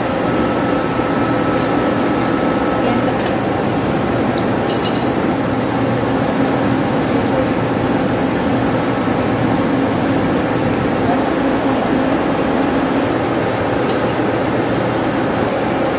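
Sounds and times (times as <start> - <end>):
wrench clinking on bolts: 4.7 - 5.2.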